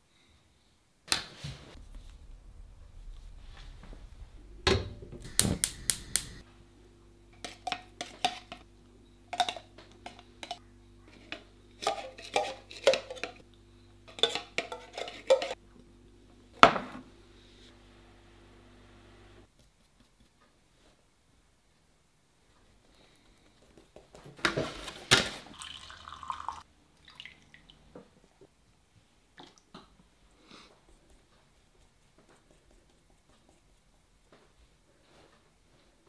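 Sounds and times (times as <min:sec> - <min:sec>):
tin can clicks and clanks: 0:09.4 - 0:10.6.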